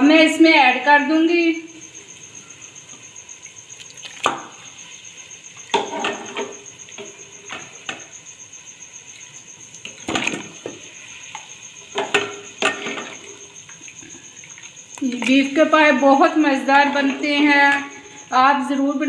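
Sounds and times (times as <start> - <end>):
faint sizzle: 0.0 - 19.0
meat splashing into metal pot: 3.8 - 4.7.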